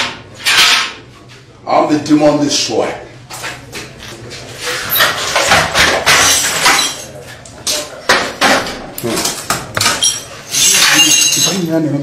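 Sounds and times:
objects crashing and clattering: 4.9s - 11.6s
glassy clinks: 9.9s - 11.7s.

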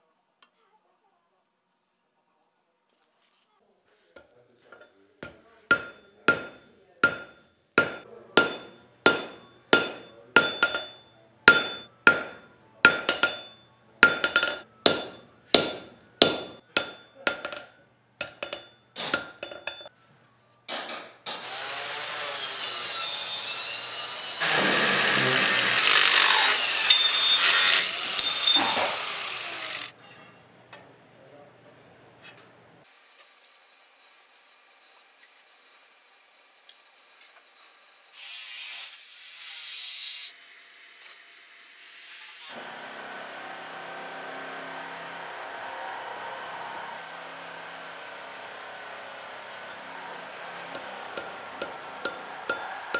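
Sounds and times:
hammer striking chisel on steel: 4.2s - 19.9s, 24.4s - 29.9s, 50.7s - 52.9s
angle grinder running: 21.3s - 29.9s, 42.5s - 52.9s
grinder grinding steel: 21.3s - 30.0s, 41.0s - 52.9s.

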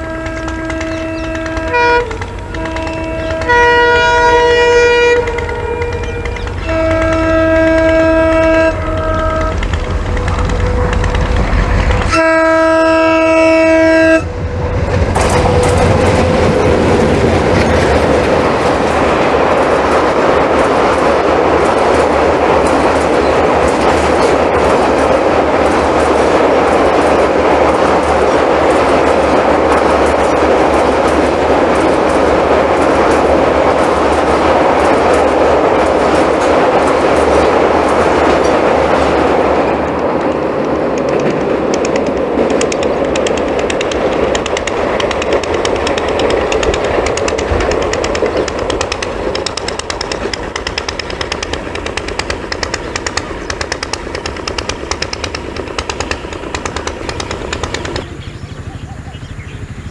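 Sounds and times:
diesel locomotive horn: 0.0s - 16.7s
train coaches clickety-clack: 0.0s - 59.9s.

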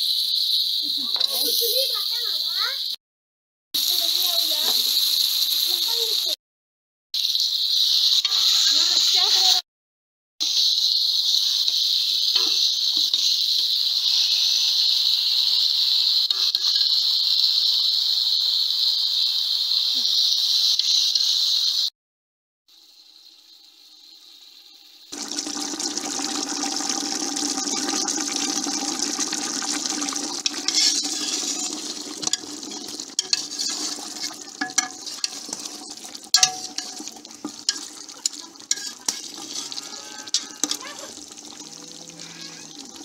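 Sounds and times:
meat sizzling in hot oil: 0.0s - 3.0s, 3.8s - 6.4s, 7.2s - 9.6s, 10.4s - 21.9s, 22.7s - 43.0s
oil crackling and popping: 3.8s - 6.4s, 7.2s - 9.6s, 10.4s - 21.9s, 25.1s - 43.0s.

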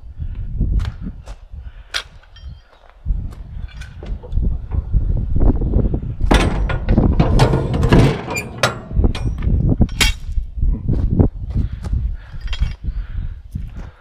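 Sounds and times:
metal clanking and rattling: 3.6s - 10.3s.

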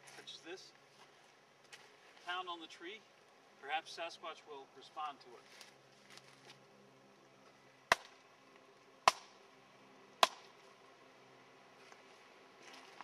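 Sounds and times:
stick knocking on tree trunk: 10.2s - 10.5s.

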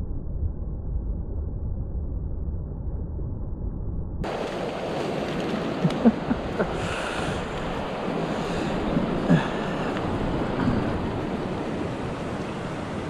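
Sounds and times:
river rushing over stones: 4.2s - 13.0s.

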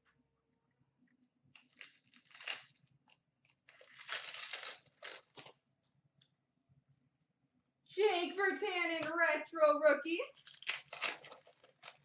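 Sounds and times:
foil wrapper crinkling: 1.6s - 2.9s, 3.6s - 5.6s, 10.3s - 12.0s.

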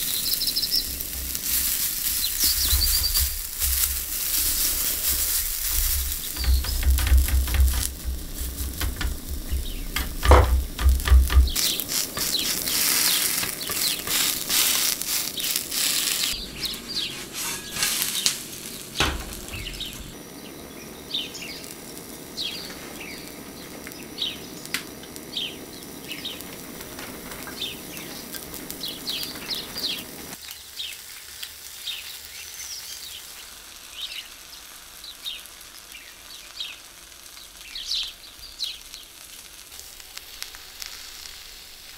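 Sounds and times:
sharp pops of frying: 0.0s - 20.2s, 21.4s - 30.6s, 35.0s - 41.9s
potato sizzling in a pan: 0.0s - 41.9s
dull knocks: 5.6s - 11.7s, 19.0s - 20.2s.

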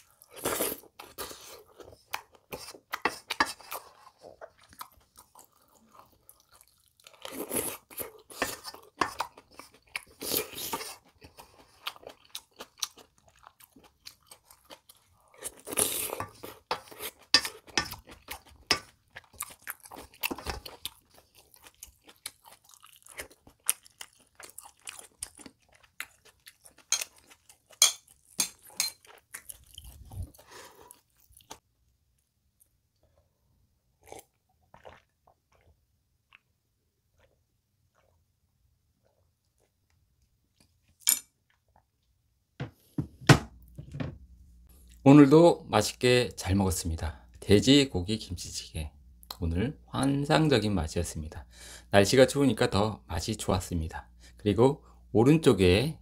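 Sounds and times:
chewing: 0.0s - 31.6s, 34.0s - 36.5s.

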